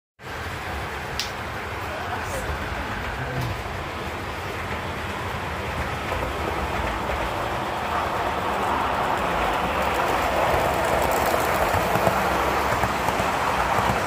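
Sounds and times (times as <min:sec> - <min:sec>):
model trains rolling rumble: 0:00.2 - 0:14.0.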